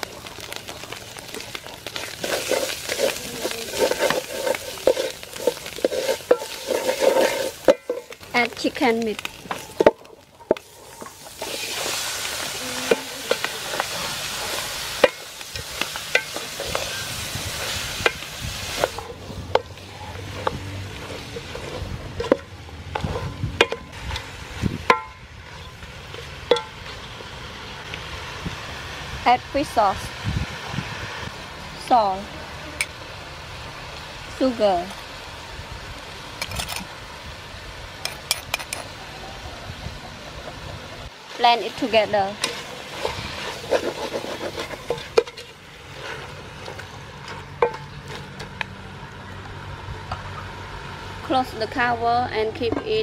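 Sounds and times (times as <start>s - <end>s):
spatula stirring chicken in pot: 1.2s - 8.2s, 42.4s - 46.4s.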